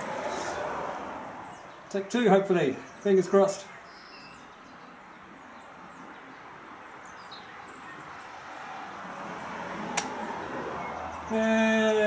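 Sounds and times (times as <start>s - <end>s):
outdoor background noise: 0.0s - 12.0s
bird chirps: 2.7s - 8.3s.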